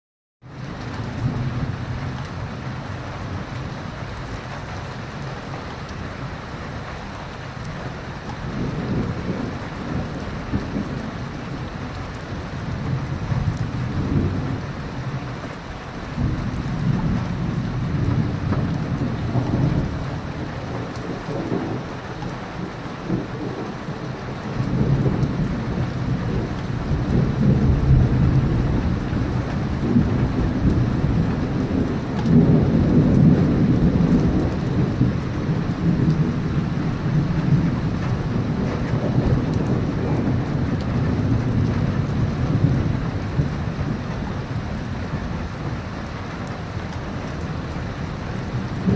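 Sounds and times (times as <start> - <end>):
steady rain on wet street: 0.4 - 48.9
rolling thunder: 8.4 - 15.4, 16.0 - 46.0, 47.2 - 48.9.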